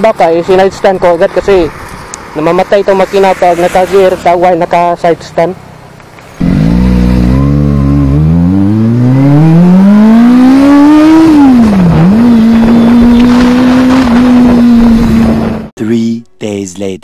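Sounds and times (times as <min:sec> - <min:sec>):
motorcycle engine accelerating: 0:06.4 - 0:15.7.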